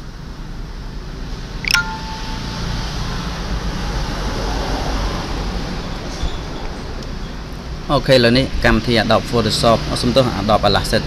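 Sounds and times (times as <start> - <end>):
descending ringing chime: 1.7 - 3.2.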